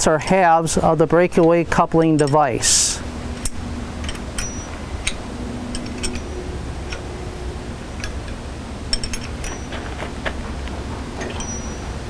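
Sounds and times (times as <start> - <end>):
low background rumble: 0.0 - 12.0
light metallic clicks: 1.4 - 2.4.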